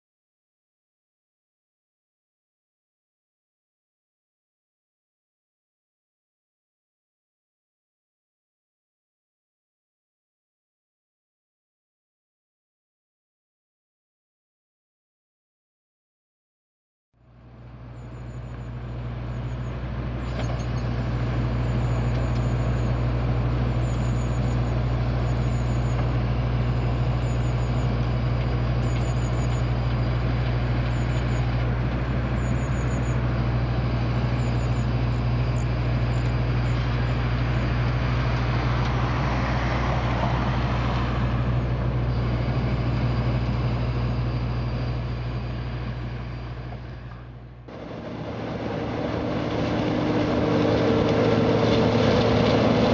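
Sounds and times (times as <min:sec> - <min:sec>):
diesel engine humming: 0:17.2 - 0:52.9.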